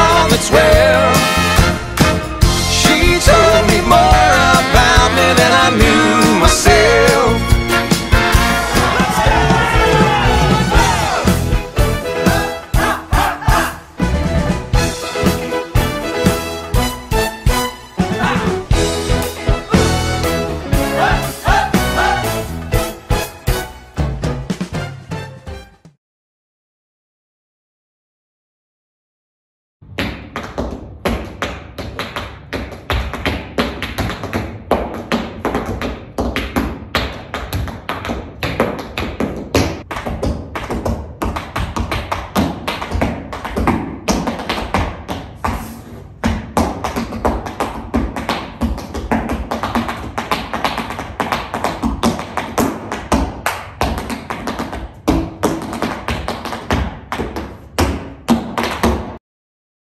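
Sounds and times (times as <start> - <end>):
music: 0.0 - 26.0
dance shoes striking floor: 29.9 - 59.2.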